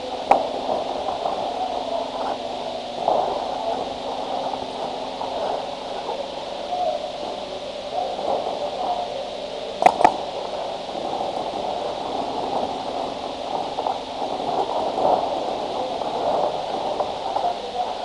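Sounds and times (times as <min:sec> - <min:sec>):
steady muffled noise: 0:00.0 - 0:18.0
paintball marker pops: 0:09.8 - 0:10.2.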